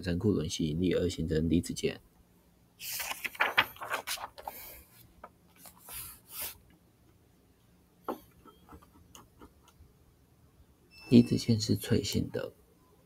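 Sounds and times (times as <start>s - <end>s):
rustling and scraping: 2.8s - 6.6s.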